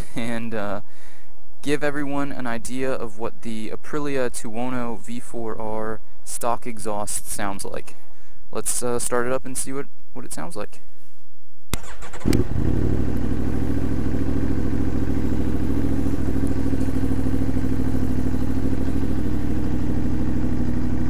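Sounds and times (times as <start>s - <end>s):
motorcycle engine starting and idling: 11.7s - 21.0s.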